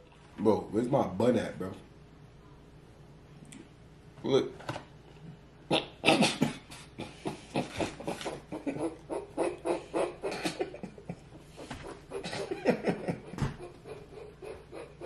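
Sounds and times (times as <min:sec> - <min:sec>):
men laughing: 0:06.8 - 0:15.0.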